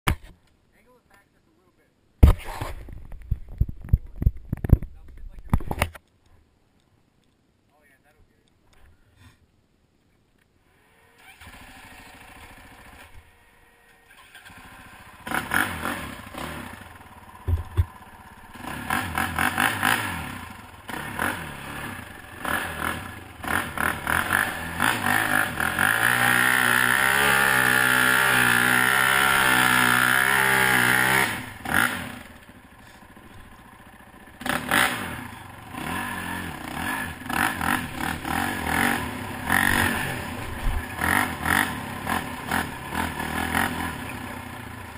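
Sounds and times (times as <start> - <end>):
atv engine revving: 10.7 - 44.9.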